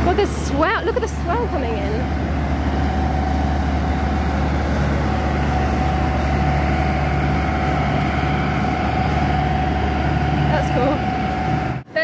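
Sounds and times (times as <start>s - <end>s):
boat engine humming with whine: 0.0s - 12.0s.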